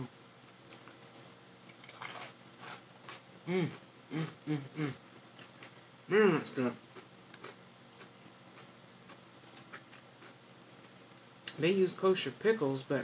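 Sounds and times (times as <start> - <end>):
chip crunching in mouth: 0.7 - 3.2
person humming mm: 3.4 - 5.0.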